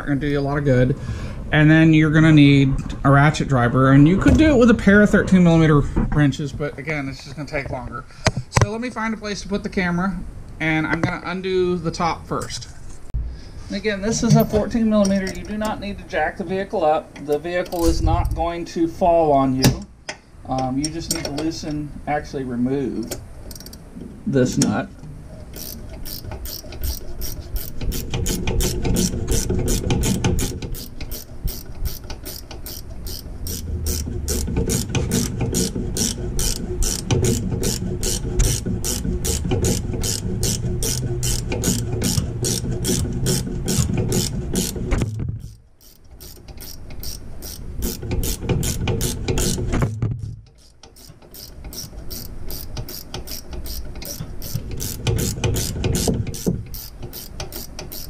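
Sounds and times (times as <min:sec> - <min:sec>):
ratchet wrench clicking: 0:23.5 - 0:23.8, 0:25.5 - 0:44.8, 0:45.4 - 0:49.7, 0:50.5 - 0:58.0.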